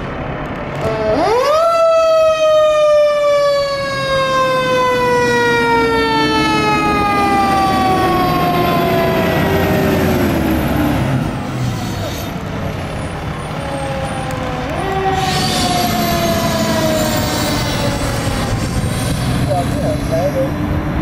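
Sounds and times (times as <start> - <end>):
mechanical siren wailing: 0.8 - 19.7
truck engine running: 6.4 - 21.0.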